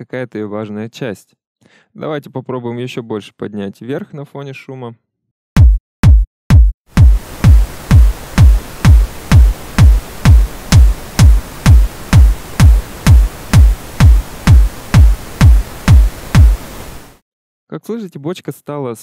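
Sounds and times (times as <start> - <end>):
electronic kick drum: 5.6 - 17.0
steady pink noise: 7.0 - 17.2.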